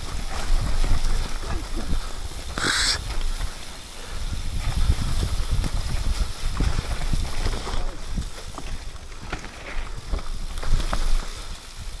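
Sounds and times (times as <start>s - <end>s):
bike knocking and rattling: 0.0s - 12.0s
tyres rolling over leaves and mud: 0.0s - 12.0s
short hiss: 2.5s - 3.2s.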